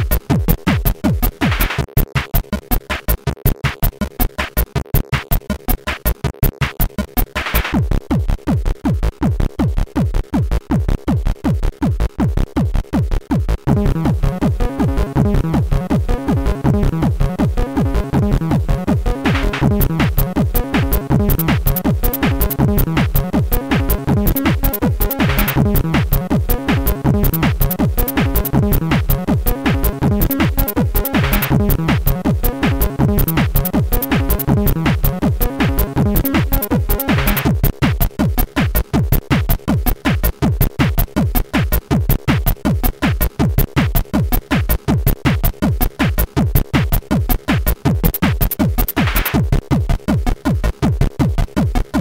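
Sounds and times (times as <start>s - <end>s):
electronic music: 0.0s - 4.4s, 13.6s - 52.0s
kick drum beat: 0.0s - 52.0s.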